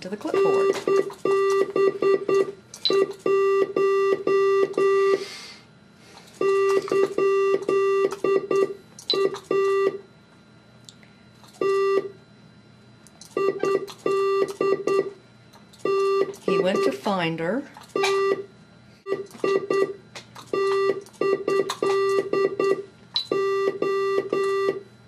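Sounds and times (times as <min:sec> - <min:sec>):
morse code beeps: 0:00.2 - 0:05.2, 0:06.4 - 0:10.0, 0:11.6 - 0:12.1, 0:13.3 - 0:15.2, 0:15.8 - 0:18.5, 0:19.1 - 0:24.8.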